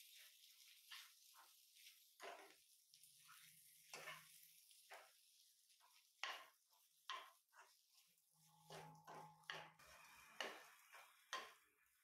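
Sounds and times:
metal spatula scraping pan: 2.2 - 2.6, 3.2 - 5.1, 5.7 - 12.0.

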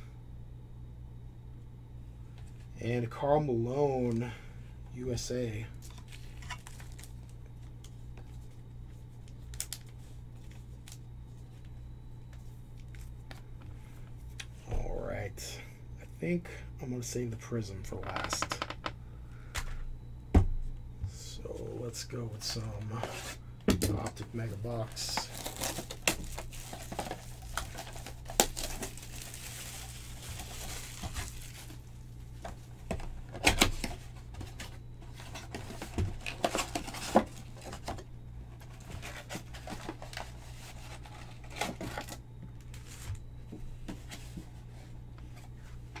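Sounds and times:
card packs handled: 5.7 - 13.5, 22.4 - 46.0
plastic wrap tearing and crinkling: 5.8 - 7.3, 24.9 - 31.9.

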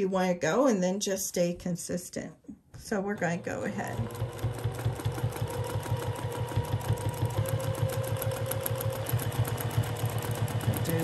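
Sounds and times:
sewing machine stitching: 2.9 - 11.0.

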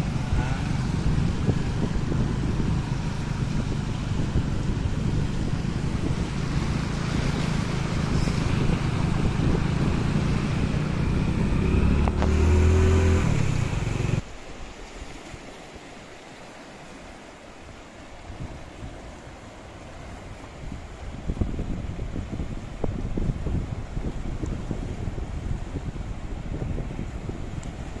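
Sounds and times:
vehicle engine running: 0.0 - 14.2
rushing wind and water: 0.0 - 28.0
steady wind hiss: 0.0 - 28.0.

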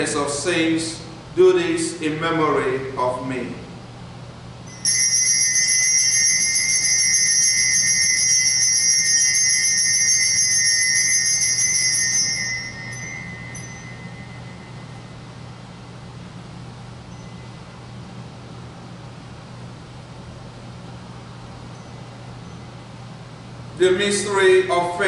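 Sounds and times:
altar bells jingling: 4.7 - 15.2.

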